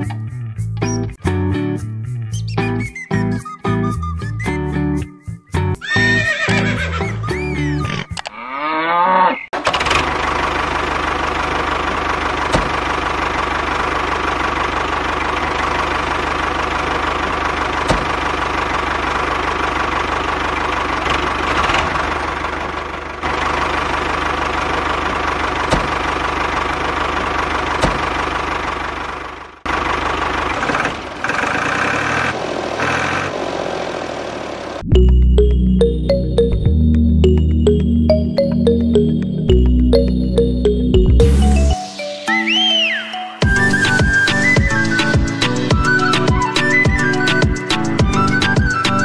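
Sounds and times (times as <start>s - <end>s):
tractor engine chugging: 9.6s - 36.6s.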